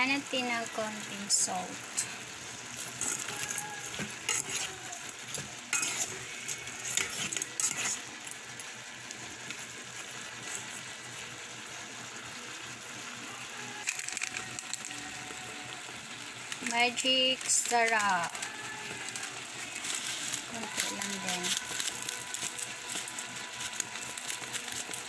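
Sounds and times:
shrimp sizzling in a pot: 0.0 - 25.0
spoon clinking and scraping pot: 2.8 - 4.7, 5.3 - 8.0.

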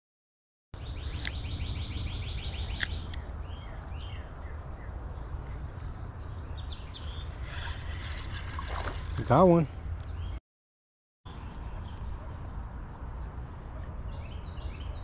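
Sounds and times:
small birds chirping: 0.8 - 10.4, 11.3 - 15.0
sharp click: 2.7 - 3.2.

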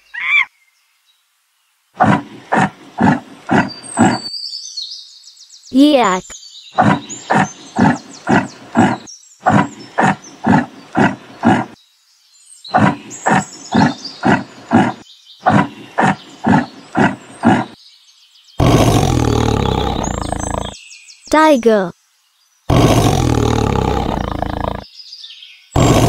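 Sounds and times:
birds chirping faintly: 0.0 - 26.0
long rough animal call: 2.0 - 4.3, 6.8 - 11.8, 12.7 - 17.8, 18.6 - 20.8, 22.7 - 24.8, 25.8 - 26.0
yak grunting: 2.0 - 4.3, 6.8 - 11.8, 12.7 - 17.8, 18.6 - 20.8, 22.7 - 24.8, 25.8 - 26.0.

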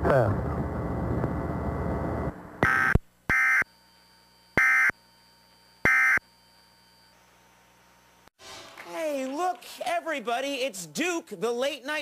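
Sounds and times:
buzzy digital data tones: 5.8 - 7.1.

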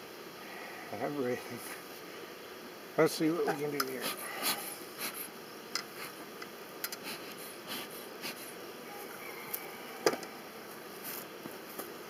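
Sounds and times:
bellows puffing air: 3.9 - 6.3, 6.9 - 8.7.

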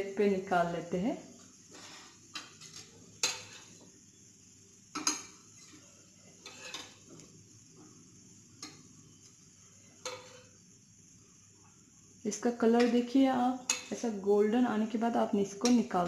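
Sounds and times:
spatula scraping a pan: 1.7 - 3.8, 5.0 - 7.2, 9.9 - 10.6, 13.6 - 14.0
spatula clinking on a plate: 2.3 - 3.8, 4.9 - 5.4, 6.4 - 7.0, 10.0 - 10.5, 13.6 - 14.0, 15.6 - 15.9.

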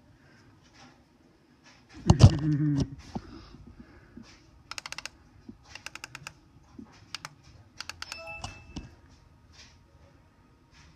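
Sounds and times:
laptop keyboard keys clicking: 4.7 - 6.4, 7.0 - 8.6
brief electronic tone: 8.0 - 8.9.

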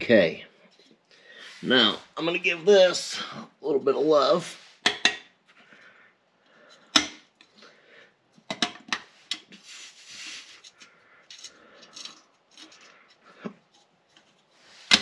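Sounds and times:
metal clicks and scraping: 10.6 - 15.0.

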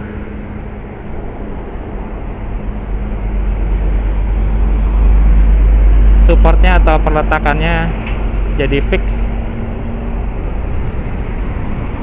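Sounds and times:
truck engine rumbling: 0.0 - 12.0.

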